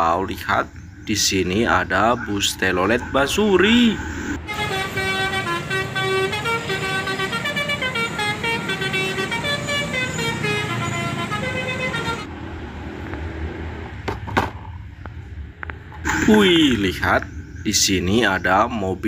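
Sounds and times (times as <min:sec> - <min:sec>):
street traffic: 0:00.0 - 0:19.0
multi-tone bus horn melody: 0:04.4 - 0:12.3.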